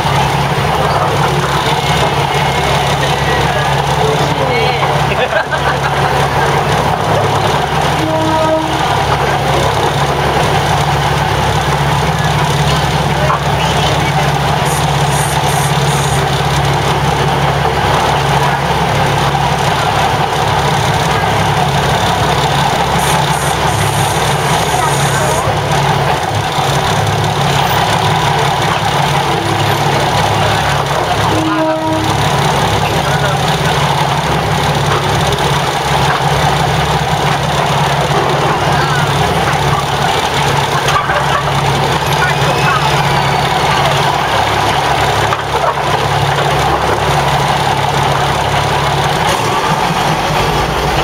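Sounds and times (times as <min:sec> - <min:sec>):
diesel railcar engine humming: 0:00.0 - 0:51.0.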